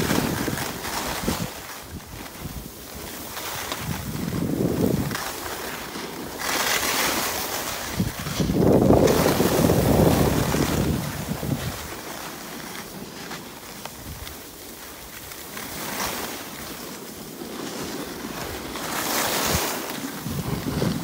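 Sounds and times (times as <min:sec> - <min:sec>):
wind on microphone: 0:00.0 - 0:06.4, 0:07.1 - 0:12.2, 0:17.8 - 0:21.0
skis scraping on snow: 0:00.0 - 0:21.0.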